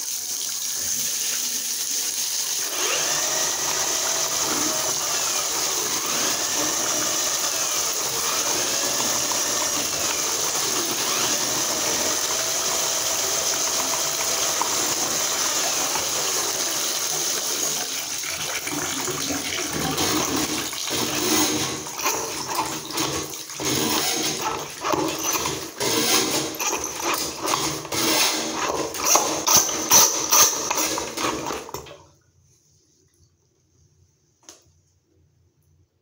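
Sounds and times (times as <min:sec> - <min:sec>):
water running into bathtub: 0:00.0 - 0:32.2
drain cable knocking and rattling: 0:03.1 - 0:17.8, 0:18.6 - 0:32.0.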